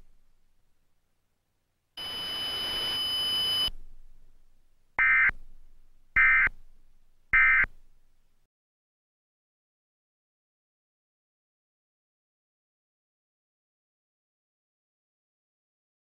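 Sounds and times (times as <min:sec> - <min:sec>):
hiss with high whines: 0:02.0 - 0:03.7.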